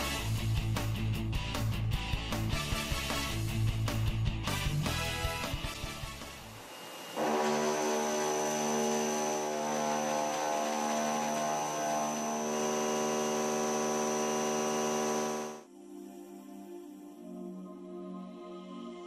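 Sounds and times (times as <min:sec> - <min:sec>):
face mill cutting steel: 0:06.3 - 0:15.6.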